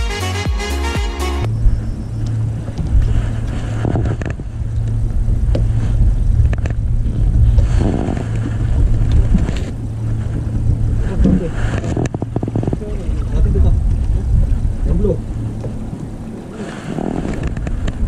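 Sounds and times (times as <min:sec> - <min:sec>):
boat engine running: 0:00.0 - 0:18.0.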